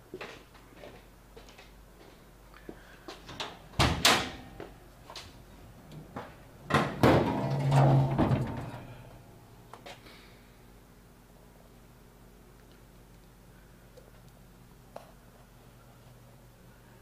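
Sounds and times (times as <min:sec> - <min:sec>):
latch clunk: 0:06.7 - 0:09.0.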